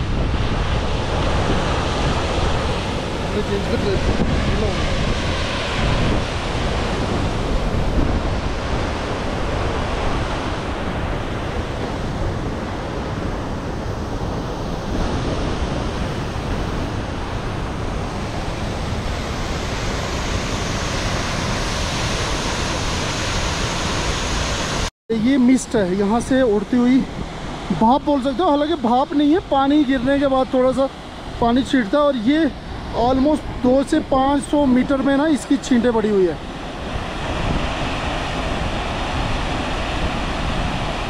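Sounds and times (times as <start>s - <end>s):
waterfall roaring onto rocks: 16.0s - 24.9s.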